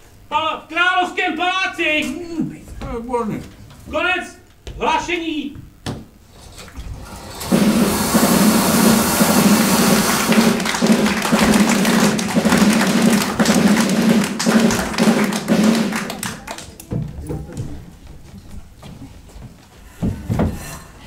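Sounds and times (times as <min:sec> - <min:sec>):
rattling drum roll: 0:06.3 - 0:16.4.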